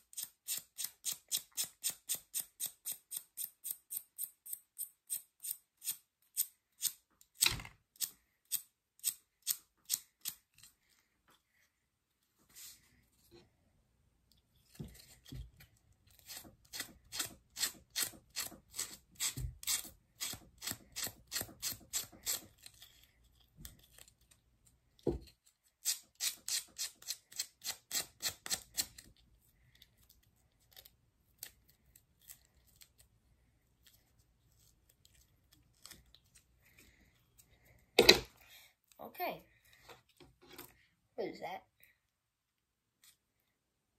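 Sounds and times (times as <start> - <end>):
file rasping grip tape: 16.2 - 23.0, 25.8 - 29.1.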